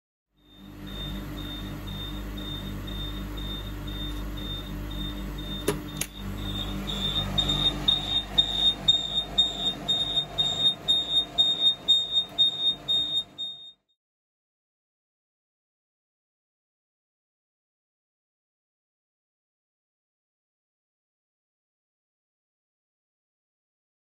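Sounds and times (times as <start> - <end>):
steady low hum: 0.4 - 13.7
high-pitched alarm beeping: 0.4 - 13.8.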